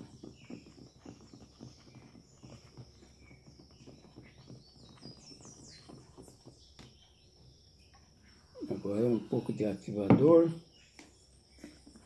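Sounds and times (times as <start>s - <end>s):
spoon stirring thick mixture: 0.0s - 10.0s
faint bird chirps: 0.0s - 12.0s.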